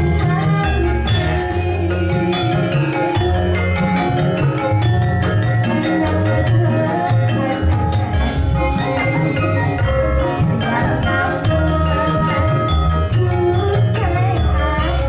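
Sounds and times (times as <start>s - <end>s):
metallophones ringing: 0.0s - 15.0s
steady drum beat: 0.0s - 15.0s.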